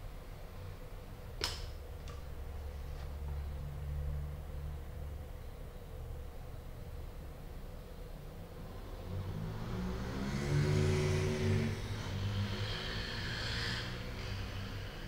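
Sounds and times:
steady low hum: 0:00.0 - 0:15.0
vehicle engine passing by: 0:08.6 - 0:15.0.

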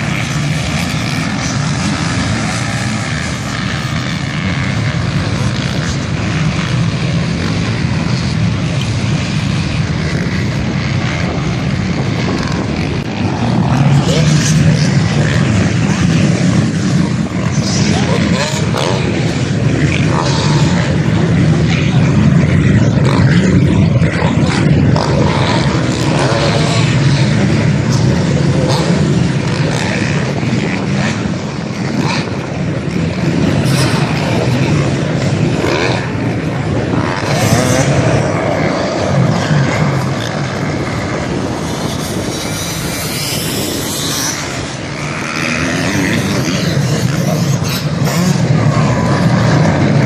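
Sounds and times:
dirt bike engines revving: 0:00.0 - 0:50.0.

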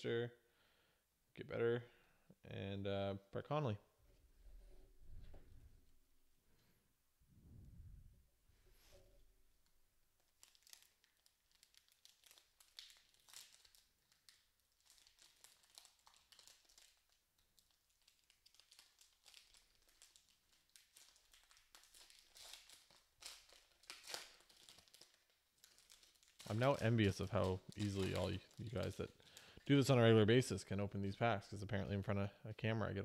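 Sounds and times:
foil wrapper crinkling and tearing: 0:10.2 - 0:29.9.

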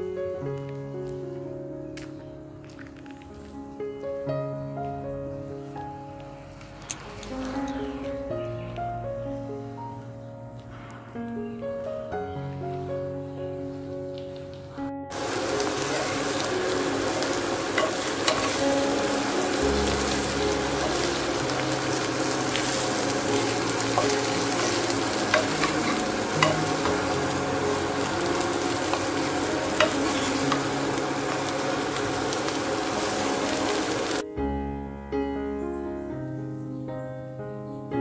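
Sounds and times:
vegetables sizzling in oil: 0:15.1 - 0:34.2.

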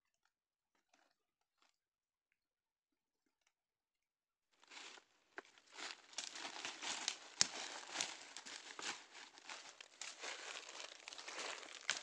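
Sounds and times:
footsteps crunching dry leaves: 0:04.7 - 0:12.0
sharp cracks of twigs: 0:05.8 - 0:12.0.

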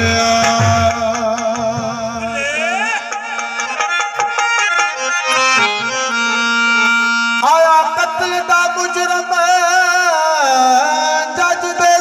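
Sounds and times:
deep drum beats: 0:00.0 - 0:02.3
tabla strokes: 0:00.0 - 0:05.6
harmonium melody: 0:00.0 - 0:12.0.

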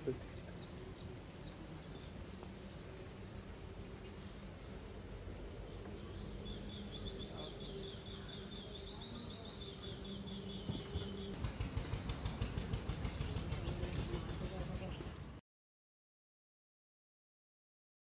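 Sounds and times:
low uneven thumps: 0:10.5 - 0:15.1.

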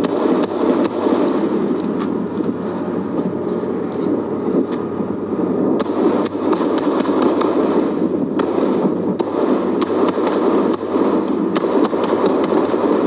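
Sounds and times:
rifle shots: 0:00.0 - 0:01.7, 0:05.7 - 0:13.0
steady rushing noise: 0:00.0 - 0:13.0.

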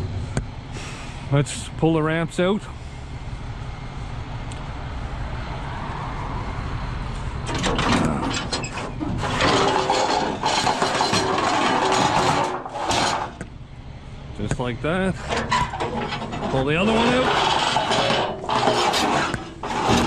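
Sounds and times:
steady low rumble: 0:00.0 - 0:05.4
metal ramp scraping and clanking: 0:07.4 - 0:13.4, 0:15.2 - 0:20.0.

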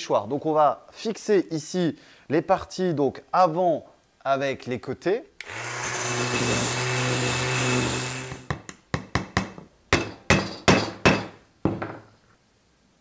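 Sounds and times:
cordless drill running: 0:05.4 - 0:08.5
hammer tapping nails into wood: 0:08.5 - 0:11.8.

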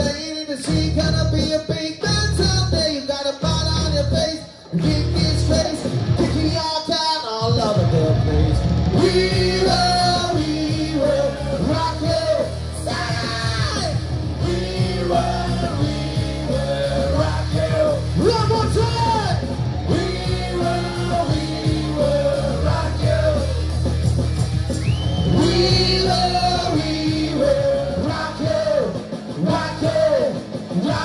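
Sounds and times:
live rock band playing: 0:00.0 - 0:31.0
person singing: 0:09.0 - 0:19.3, 0:19.9 - 0:23.6, 0:25.3 - 0:31.0.

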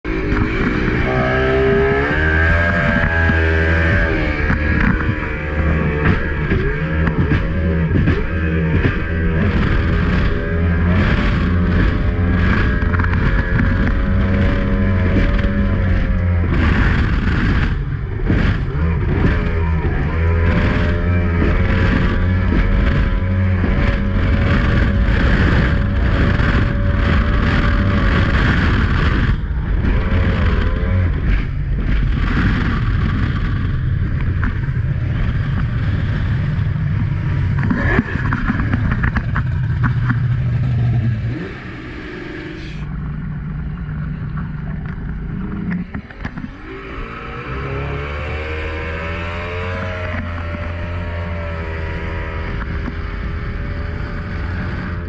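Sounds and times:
outboard motor at speed: 0:00.0 - 0:55.0.

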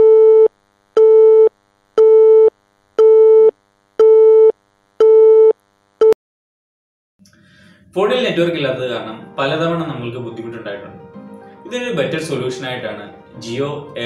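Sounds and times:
telephone busy tone: 0:00.0 - 0:06.2.

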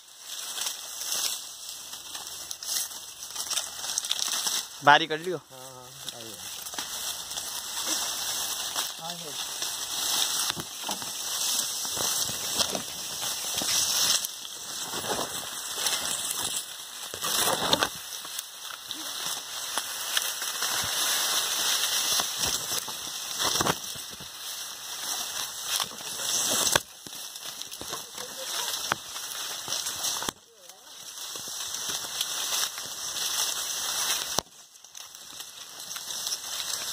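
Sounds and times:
dry leaves rustling and crackling: 0:00.0 - 0:36.9
stalks cracking: 0:00.2 - 0:36.9.

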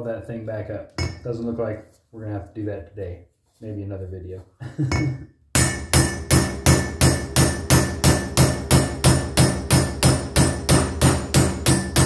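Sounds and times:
hammer striking metal: 0:01.0 - 0:01.3, 0:04.9 - 0:12.0.

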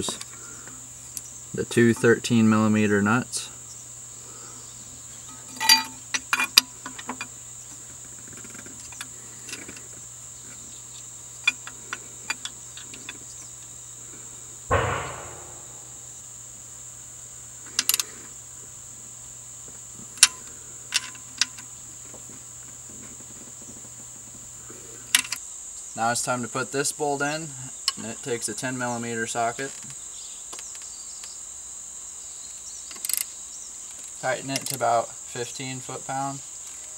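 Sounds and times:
metal clunk: 0:14.7 - 0:16.1
low hum: 0:14.7 - 0:16.2.

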